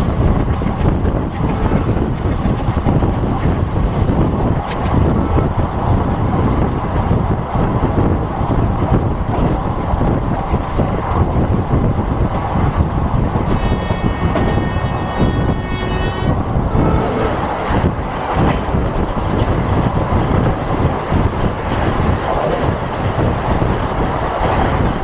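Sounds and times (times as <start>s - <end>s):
train rumble and clatter: 0.0s - 25.0s
train rushing past: 0.0s - 25.0s
train horn: 13.4s - 17.6s.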